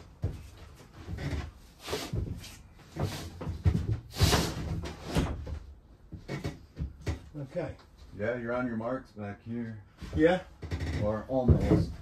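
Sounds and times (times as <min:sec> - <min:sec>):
wooden knocks and bumps: 0:02.2 - 0:07.4, 0:10.0 - 0:12.0.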